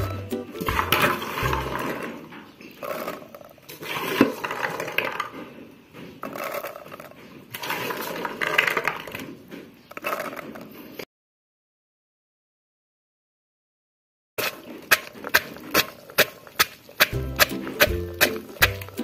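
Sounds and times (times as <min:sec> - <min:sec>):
berries knocking in a mortar: 0:14.4 - 0:19.0.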